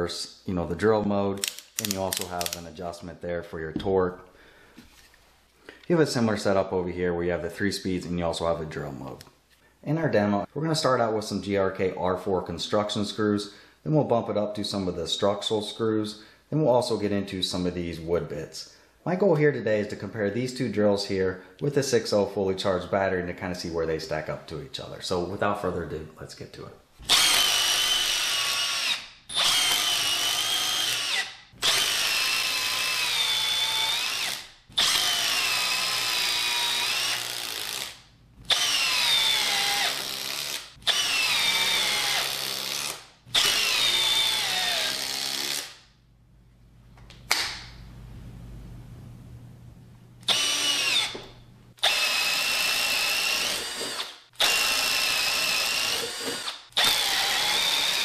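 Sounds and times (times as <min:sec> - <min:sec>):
drill boring into wood: 0:27.1 - 0:45.8, 0:50.2 - 0:51.2, 0:51.8 - 0:58.0
impact driver driving screws: 0:27.1 - 0:45.8, 0:51.8 - 0:58.0.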